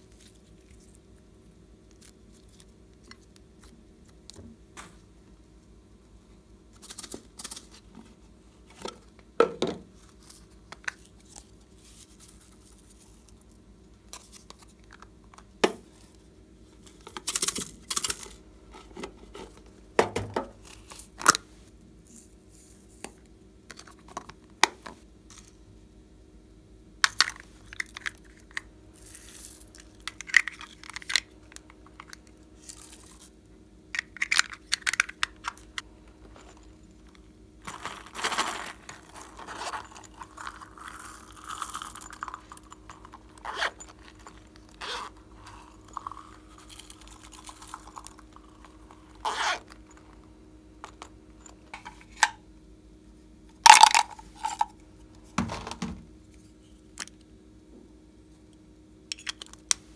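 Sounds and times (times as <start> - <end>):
rustling: 36.0 - 50.2.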